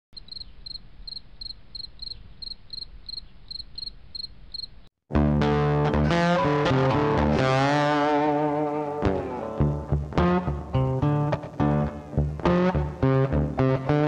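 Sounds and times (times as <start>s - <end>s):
cricket chirping: 0.2s - 4.9s
loud guitar music: 5.1s - 14.0s.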